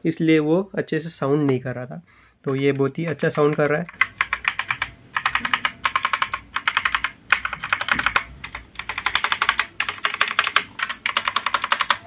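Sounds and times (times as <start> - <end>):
mechanical keyboard key clicks: 2.5 - 12.0.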